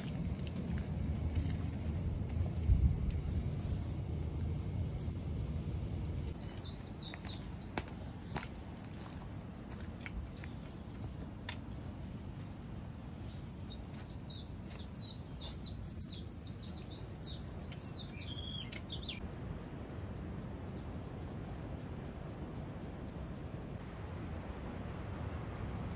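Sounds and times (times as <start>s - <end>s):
low background rumble: 0.0s - 25.9s
songbird singing: 6.3s - 9.2s, 13.1s - 23.6s.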